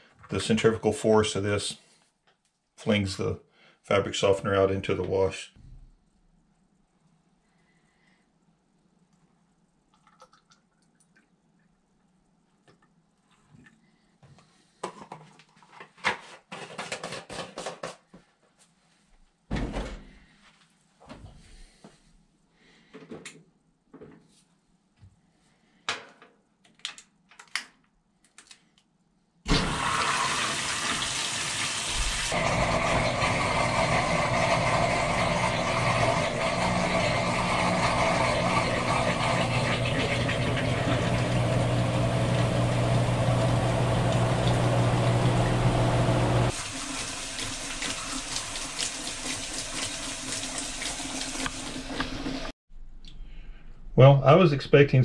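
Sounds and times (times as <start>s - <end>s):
washing machine motor hum: 29.5s - 52.5s.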